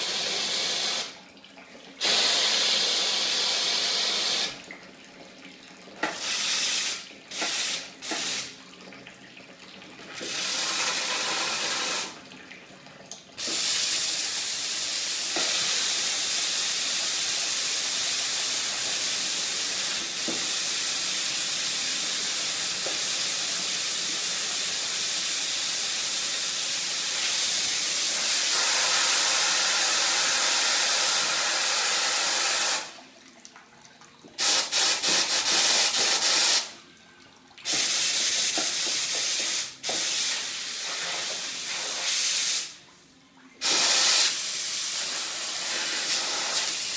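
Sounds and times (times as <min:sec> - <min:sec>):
espresso machine steam hissing: 0:00.0 - 0:01.1, 0:02.0 - 0:04.5, 0:10.2 - 0:12.1, 0:27.5 - 0:32.9.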